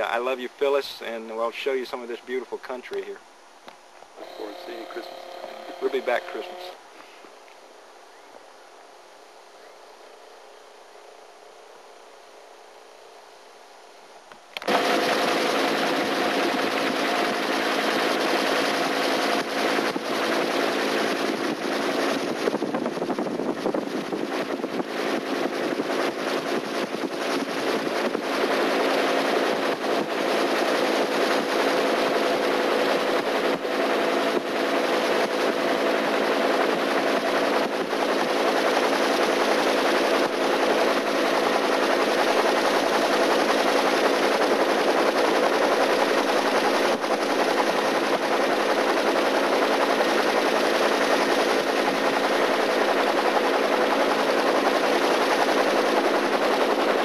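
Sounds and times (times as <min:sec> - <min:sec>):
loud engine running: 0:04.2 - 0:06.8, 0:14.6 - 0:57.0.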